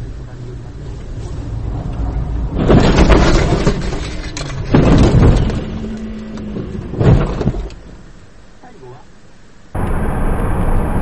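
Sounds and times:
heavy car crash impacts: 0:02.5 - 0:05.8
crunching and rattling: 0:02.5 - 0:06.0.

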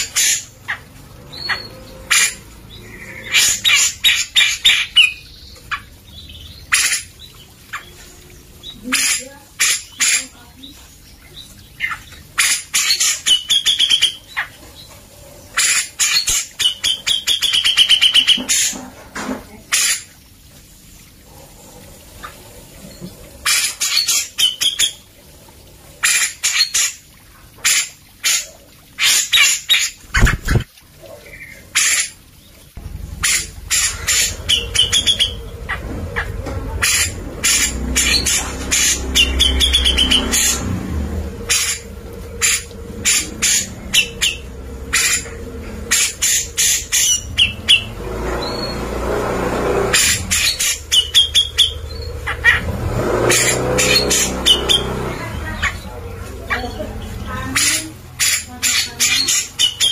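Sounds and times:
bird chattering song: 0:00.0 - 0:14.6, 0:15.5 - 0:18.8, 0:33.2 - 0:40.6, 0:41.4 - 0:48.8, 0:49.9 - 0:59.9.

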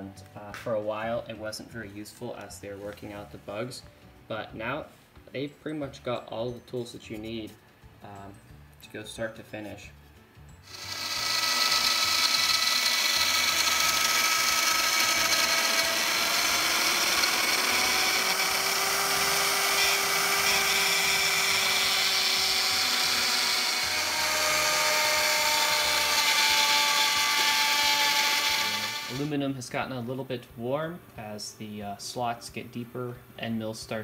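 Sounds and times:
router spindle cutting metal: 0:10.7 - 0:29.3.

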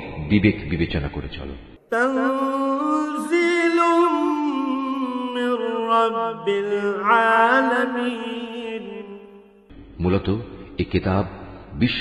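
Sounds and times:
man chanting melodically: 0:00.0 - 0:12.0.

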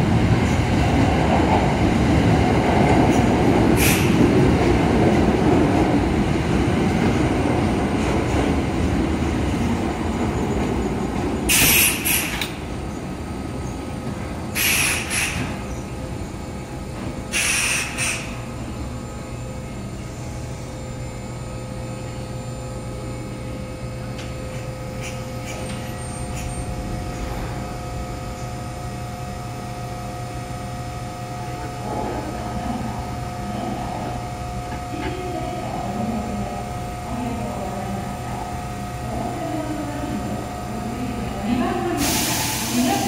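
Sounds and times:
electric train humming: 0:00.0 - 0:43.0
short hiss: 0:14.6 - 0:15.4, 0:17.3 - 0:18.3.

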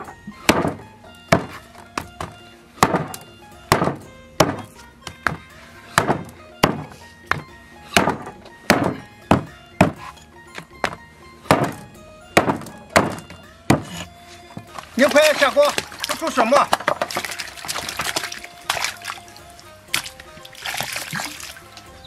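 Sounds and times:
cleaver chopping on wooden block: 0:00.0 - 0:14.8
background music: 0:00.0 - 0:22.0.

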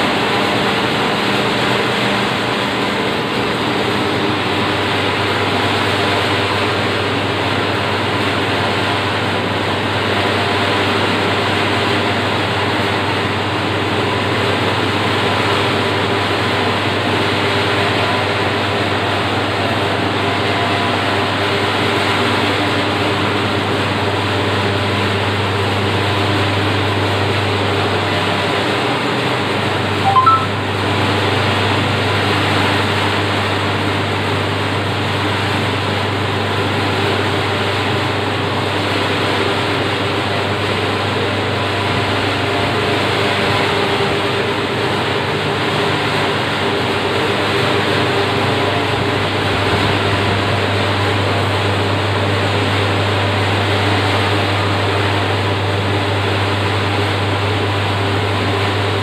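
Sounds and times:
oven blower and burner roar: 0:00.0 - 0:59.0
rising three-note beep: 0:30.0 - 0:30.8.

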